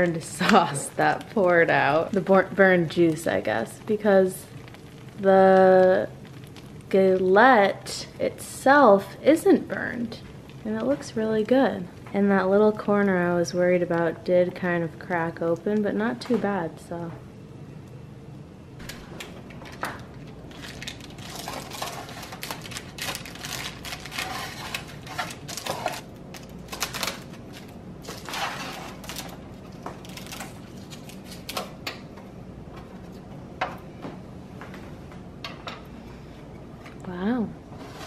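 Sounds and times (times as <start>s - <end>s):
metal spatula scraping baking sheet: 24.0s - 26.0s, 28.1s - 29.0s, 37.8s - 38.0s.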